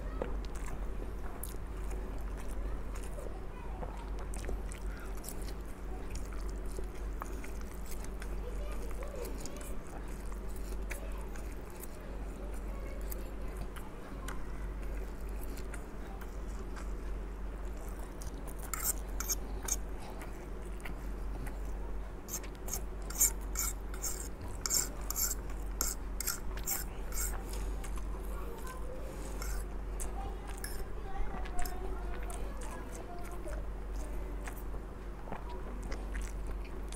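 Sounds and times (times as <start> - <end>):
quiet chewing: 0.1 - 36.9
metal fork scraping a plate: 18.7 - 19.8, 22.3 - 27.4, 29.4 - 29.6.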